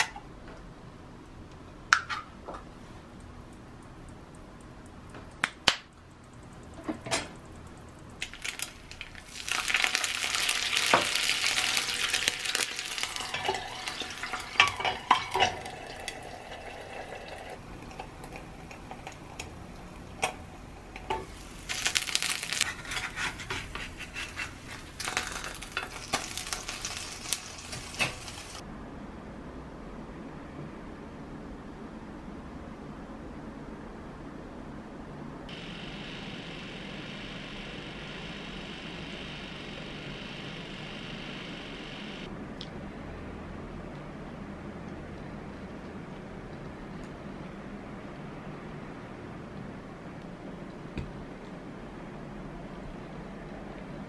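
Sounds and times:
egg sizzling in a skillet: 6.3 - 28.6
metal utensils clinking: 13.3 - 17.0.

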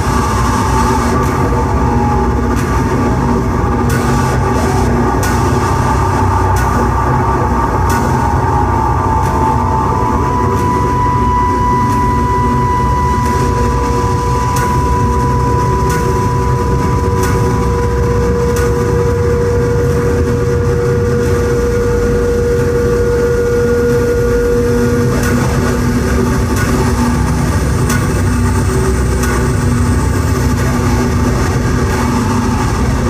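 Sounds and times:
held high tone: 0.0 - 20.3
lower held tone: 0.0 - 33.0
rumbling electronic drone: 0.0 - 33.0.

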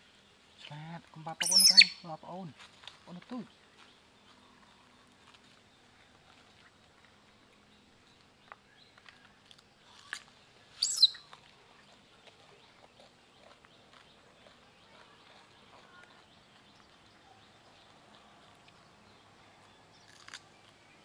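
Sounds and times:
high-pitched chirp: 1.4 - 2.0, 10.8 - 11.2
monkeys chewing: 8.9 - 17.0.

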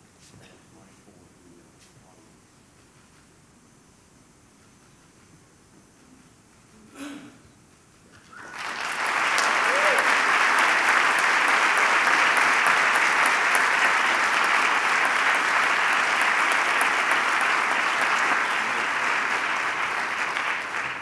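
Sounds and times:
audience applauding: 8.2 - 21.0.

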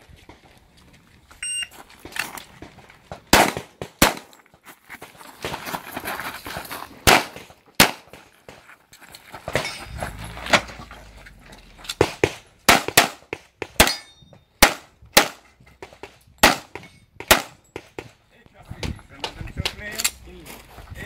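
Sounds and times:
pistol shots: 3.3 - 4.3, 7.0 - 8.3, 12.0 - 15.4, 16.4 - 17.6.

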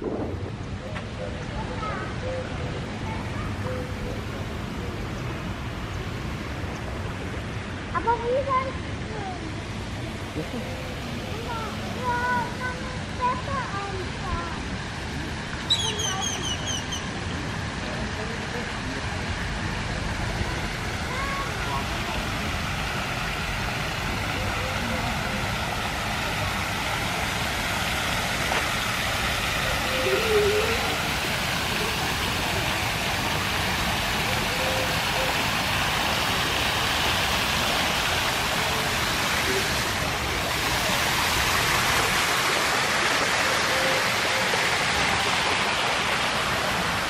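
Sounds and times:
wind buffeting microphone: 0.0 - 3.3
faint distant voices: 0.0 - 47.0
fountain water splashing into pool: 0.0 - 47.0.

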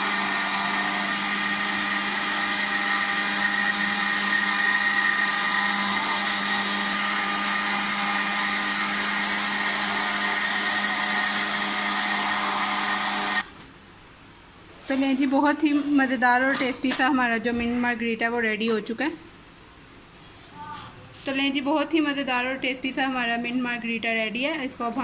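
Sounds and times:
blender blending ice: 0.0 - 13.5.

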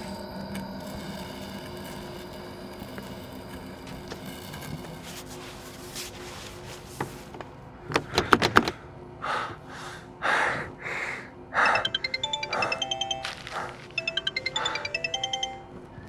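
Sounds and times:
horror film score: 0.0 - 5.1.

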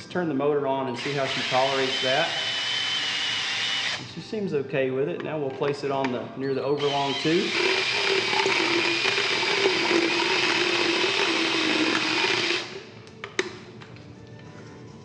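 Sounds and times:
power tool grinding tooth: 1.0 - 4.0, 6.8 - 12.9.

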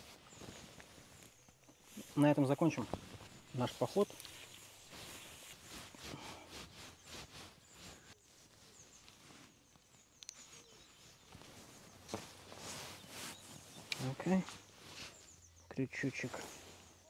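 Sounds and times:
rustling of fishing gear: 0.0 - 17.0.

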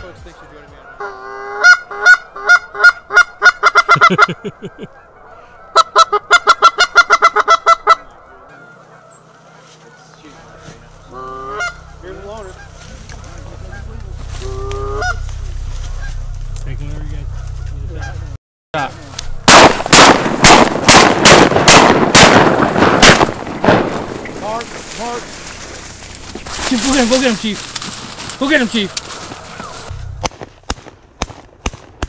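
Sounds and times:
goose honking: 0.0 - 18.4, 24.0 - 29.9.

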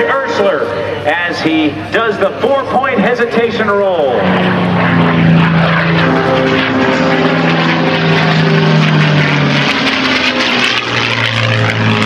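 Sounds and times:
propeller plane engine droning: 0.0 - 12.0.

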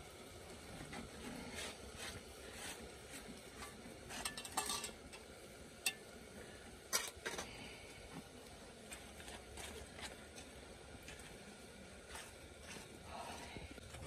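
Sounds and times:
faint steady hiss: 0.0 - 14.0
metal utensil clinking on metal: 4.1 - 5.0.

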